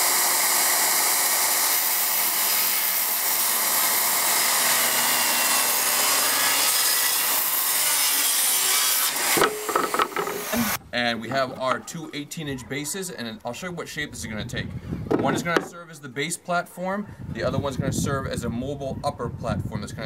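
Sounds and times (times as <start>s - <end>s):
circular saw cutting wood: 0.0s - 10.8s
short knocks: 9.4s - 10.7s.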